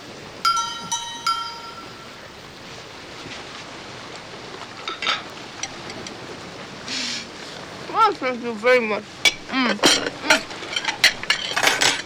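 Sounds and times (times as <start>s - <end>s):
distant sea: 0.0s - 12.0s
wind: 0.0s - 12.0s
tableware clinking: 0.5s - 2.2s, 4.8s - 6.0s, 9.2s - 12.0s.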